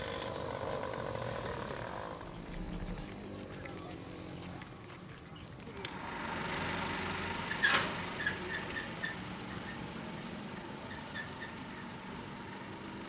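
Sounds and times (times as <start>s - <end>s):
cart wheel squeaks: 7.5s - 12.0s.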